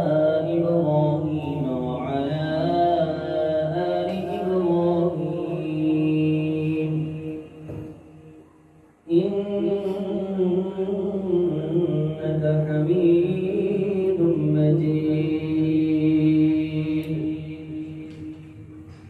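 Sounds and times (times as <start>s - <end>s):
man reciting melodically: 0.0s - 8.4s, 9.0s - 18.9s.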